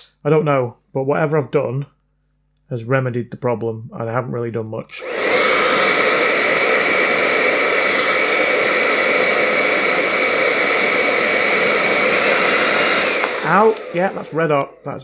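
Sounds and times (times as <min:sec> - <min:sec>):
hair dryer running: 0:05.0 - 0:14.9.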